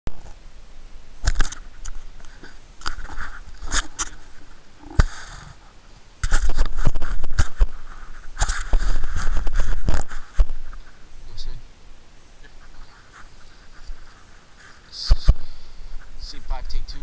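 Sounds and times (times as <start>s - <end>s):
rumble and crackling: 0.1s - 17.0s
camera handling rubbing and clicks: 1.2s - 5.2s, 6.2s - 11.0s.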